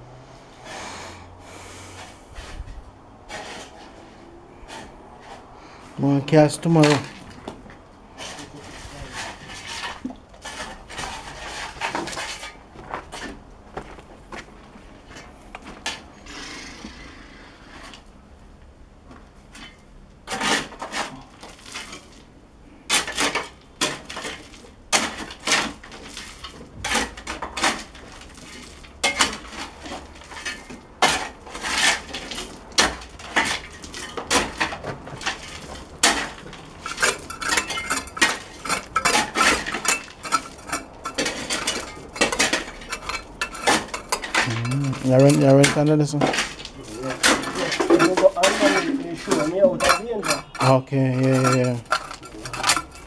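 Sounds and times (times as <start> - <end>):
shovel scraping through gravel: 3.3 - 7.3, 8.1 - 13.4, 22.9 - 53.0
shovel clinking on stones: 30.3 - 53.0.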